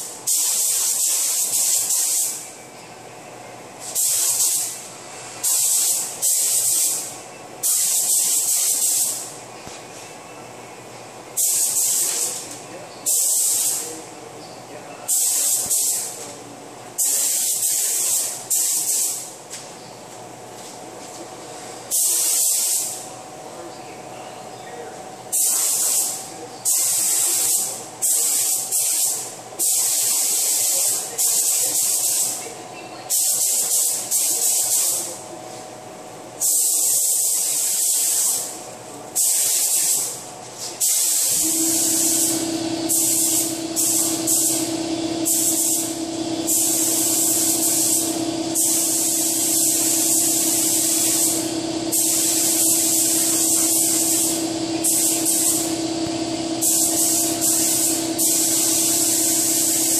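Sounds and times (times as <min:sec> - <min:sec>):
paint spray gun hissing: 0:00.3 - 0:02.4, 0:03.9 - 0:04.8, 0:05.4 - 0:09.2, 0:11.4 - 0:12.4, 0:15.1 - 0:16.1, 0:21.9 - 0:23.0, 0:25.3 - 0:32.4, 0:39.2 - 0:40.1, 0:40.8 - 0:59.9
steady low hum: 0:40.2 - 0:59.9.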